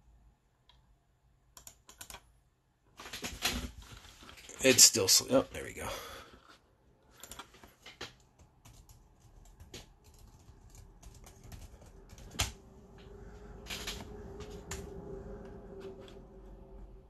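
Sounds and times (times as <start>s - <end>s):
keyboard keys clicking: 1.6s - 2.2s, 7.2s - 12.6s.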